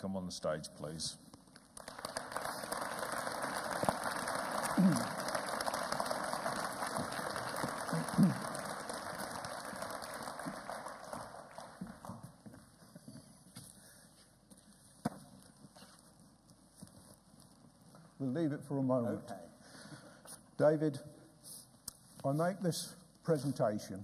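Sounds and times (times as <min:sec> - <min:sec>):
audience applauding: 0:01.8 - 0:12.4.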